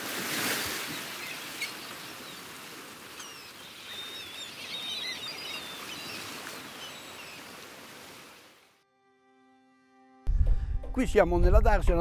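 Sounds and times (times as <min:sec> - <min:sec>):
sea surf wash: 0:00.0 - 0:08.7
small birds chirping: 0:00.8 - 0:08.4.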